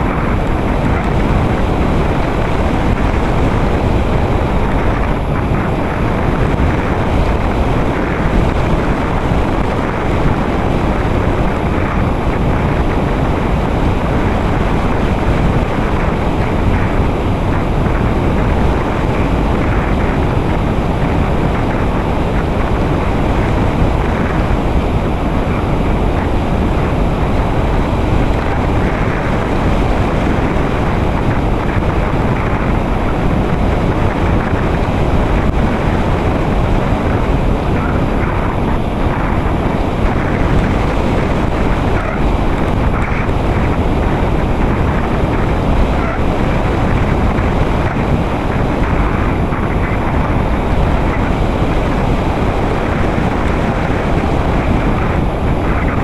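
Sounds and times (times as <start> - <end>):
rushing airflow over microphone: 0.0 - 56.0.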